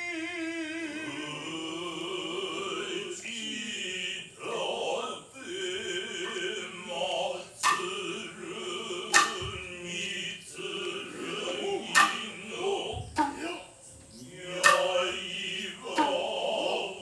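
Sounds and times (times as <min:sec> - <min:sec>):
men chanting: 0:00.0 - 0:17.0
sharp knock: 0:07.6 - 0:08.0, 0:09.1 - 0:09.7, 0:11.9 - 0:13.5, 0:14.6 - 0:15.1, 0:16.0 - 0:16.2.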